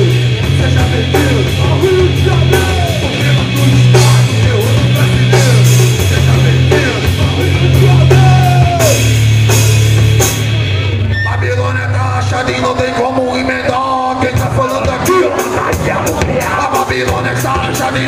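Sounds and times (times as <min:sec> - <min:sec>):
drum kit and cymbals: 0:00.0 - 0:11.2
bass guitar: 0:00.0 - 0:18.0
electric guitars: 0:00.0 - 0:18.0.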